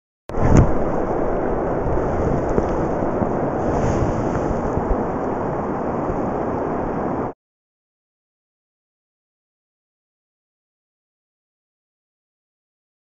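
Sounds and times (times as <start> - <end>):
churning river water: 0.3 - 7.3
low rumble: 0.3 - 7.3.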